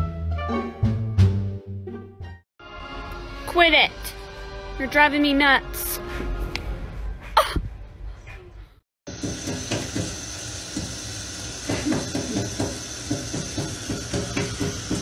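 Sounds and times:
tap running into steel sink: 9.2s - 15.0s.

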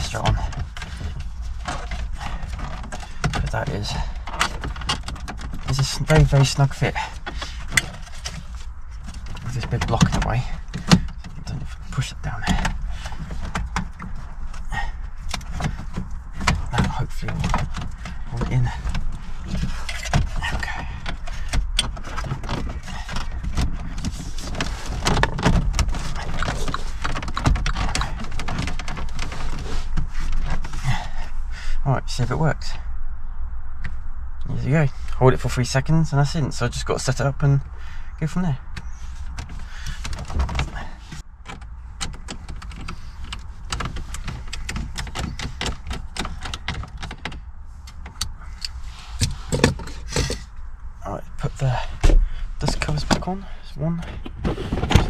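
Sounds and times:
plastic trim clicking and rattling: 0.0s - 11.9s, 12.5s - 30.7s, 41.4s - 50.6s.

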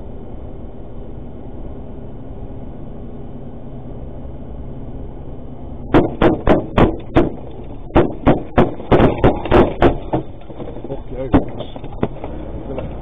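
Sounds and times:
road noise: 0.0s - 13.0s
gunshots hitting a van: 5.9s - 12.2s.

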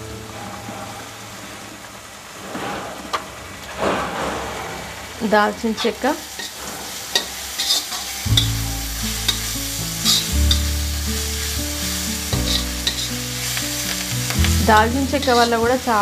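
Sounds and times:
food sizzling in oil: 5.7s - 16.0s
metal spatula scraping a pan: 5.8s - 10.8s, 11.8s - 16.0s.

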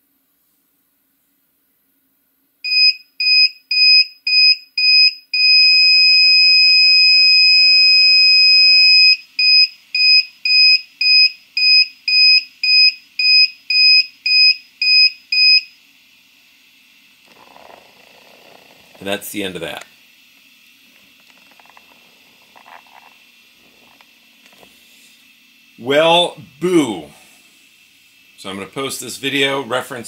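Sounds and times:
printer buzzer beeping: 2.7s - 15.7s.

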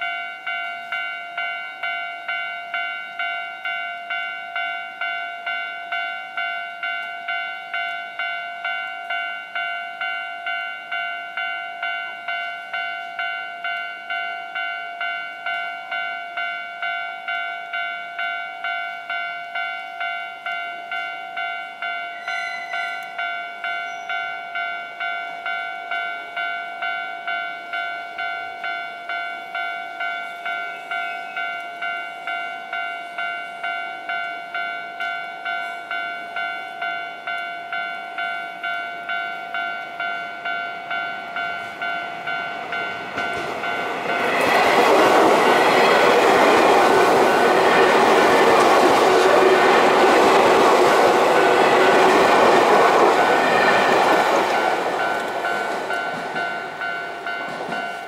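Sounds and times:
electric train passing: 0.0s - 58.0s
level-crossing warning bell ringing: 0.0s - 58.0s.

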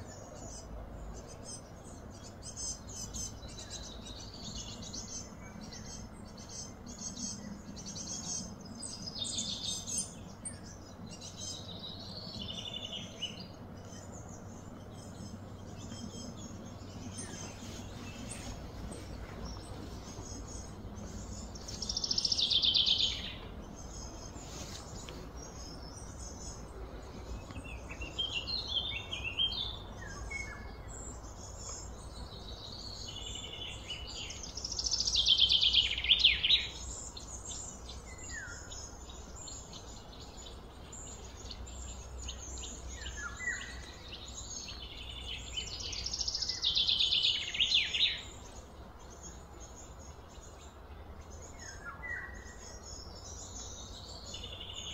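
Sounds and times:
low background rumble: 0.0s - 47.5s
bird chirps: 0.0s - 54.9s.

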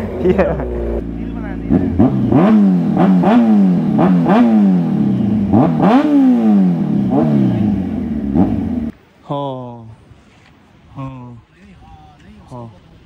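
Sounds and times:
motorcycle engine revving: 0.0s - 9.0s.

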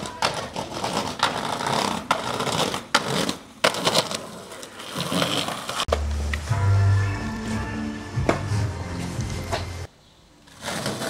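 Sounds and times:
skateboard clacking on ground: 0.0s - 6.4s
skateboard wheels rolling on pavement: 0.0s - 11.0s
music: 5.9s - 9.9s.

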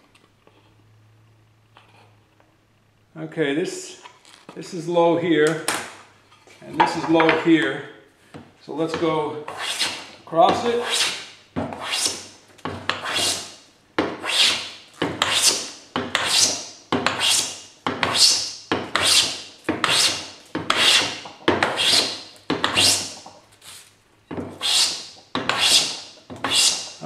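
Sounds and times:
hand plane shaving wood: 9.5s - 12.2s, 12.9s - 13.5s, 14.2s - 23.2s, 24.6s - 27.0s.

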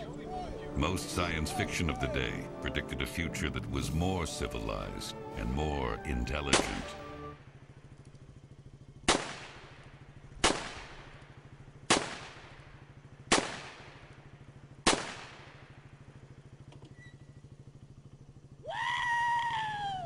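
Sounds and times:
low pulsing hum: 0.0s - 20.0s
gunshots echoing: 6.4s - 7.0s, 9.0s - 11.2s, 11.8s - 14.1s, 14.8s - 15.8s.

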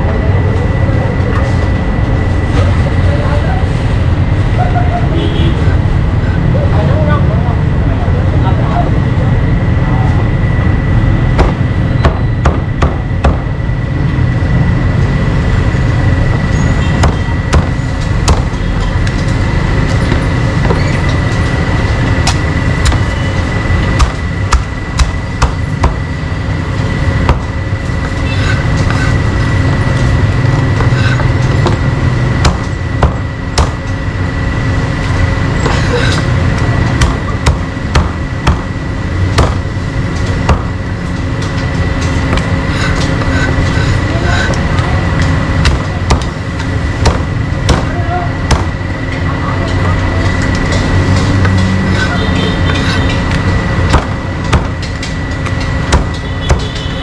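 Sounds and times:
steady low rumble: 0.0s - 57.0s
cleaver chopping meat: 17.0s - 18.5s, 24.0s - 26.1s, 32.4s - 33.8s, 36.9s - 38.7s, 39.4s - 39.7s, 45.6s - 46.4s, 47.0s - 48.8s.

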